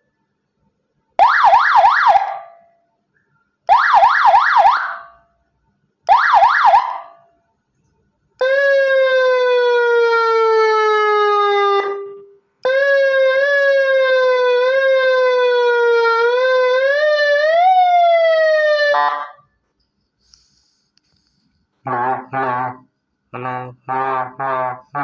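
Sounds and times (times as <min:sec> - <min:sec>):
electronic siren: 0:01.2 - 0:02.6, 0:03.7 - 0:05.2, 0:06.1 - 0:07.2, 0:08.4 - 0:19.5, 0:21.9 - 0:22.9.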